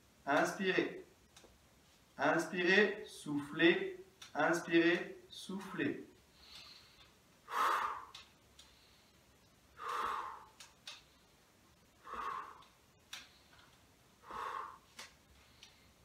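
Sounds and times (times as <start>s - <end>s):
man breathing deeply: 6.2s - 16.0s
faint clicks: 6.4s - 7.2s, 8.1s - 9.6s, 10.5s - 11.2s.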